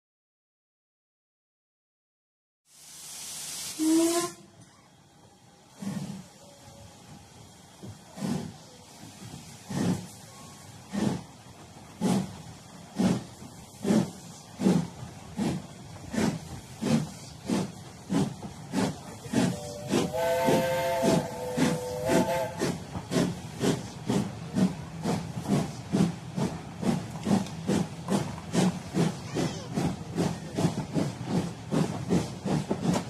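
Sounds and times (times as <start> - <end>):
steam hiss: 2.7 - 4.4, 5.6 - 33.0
steam whistle: 3.7 - 4.5, 19.5 - 22.8
steam locomotive chuffing: 5.2 - 33.0.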